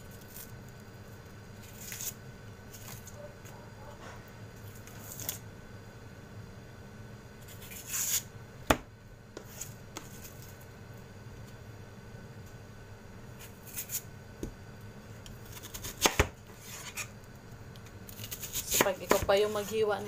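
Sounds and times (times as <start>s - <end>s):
onion skin rustling: 0.0s - 3.9s, 18.0s - 20.0s.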